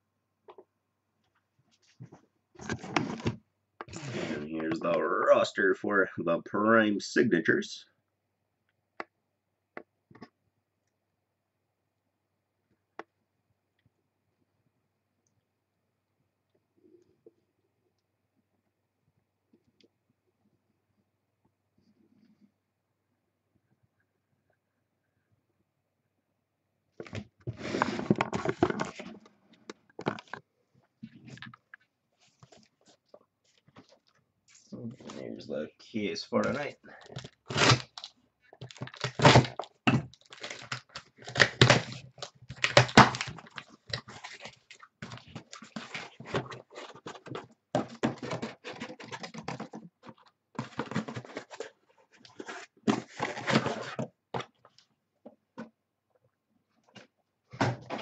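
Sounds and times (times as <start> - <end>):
handling rustling and scraping: 27.0 - 35.4, 37.0 - 55.8.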